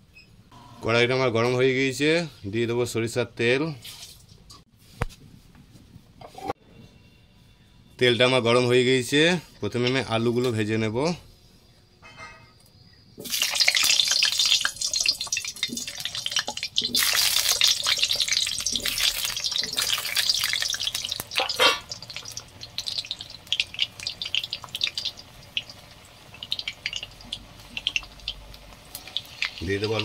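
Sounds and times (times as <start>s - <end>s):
potatoes sizzling in hot oil: 13.2s - 30.0s.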